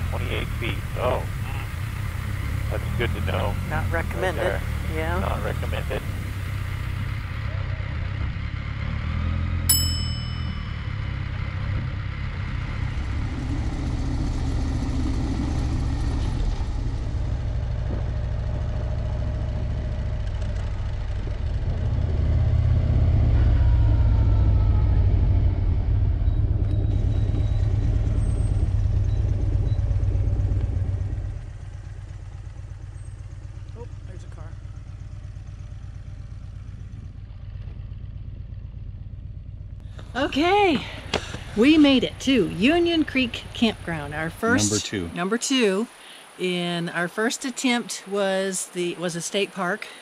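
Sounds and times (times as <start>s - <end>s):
motorcycle engine rumbling: 0.0s - 50.0s
bright click with ringing ding: 9.7s - 11.1s.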